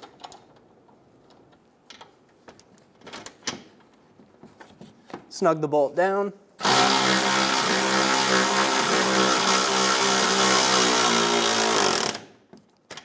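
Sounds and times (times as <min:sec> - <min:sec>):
power ratchet motor whine: 0:06.6 - 0:12.2.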